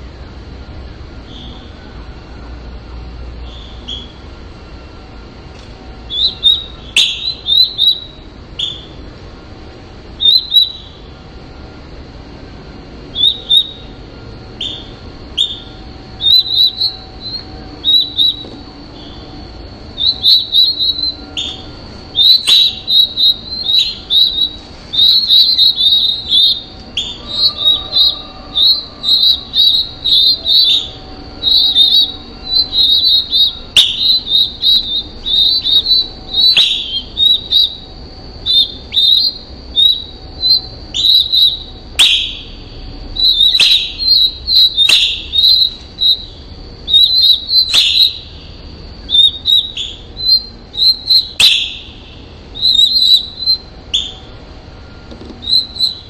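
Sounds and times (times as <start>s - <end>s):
baby birds cheeping: 0.0s - 2.2s, 3.0s - 56.0s.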